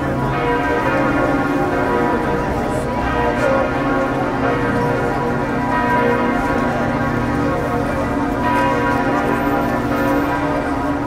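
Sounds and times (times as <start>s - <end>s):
church bells pealing: 0.0s - 11.0s.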